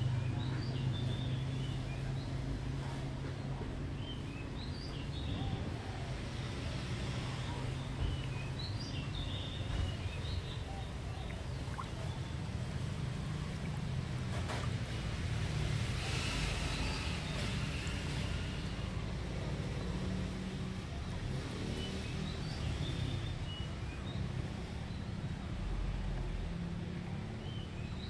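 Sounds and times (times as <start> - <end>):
water swishing in a tub: 6.3 - 19.1.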